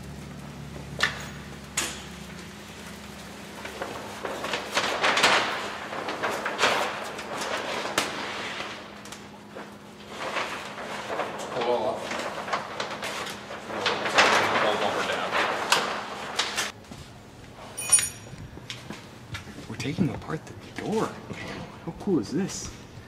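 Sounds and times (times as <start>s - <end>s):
plastic film rustling and crinkling: 2.1s - 16.9s.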